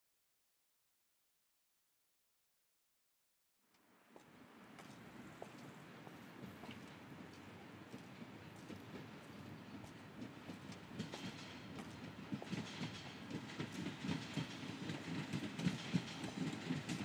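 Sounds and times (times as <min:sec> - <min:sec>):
freight wagons clattering on rails: 0:06.5 - 0:17.0.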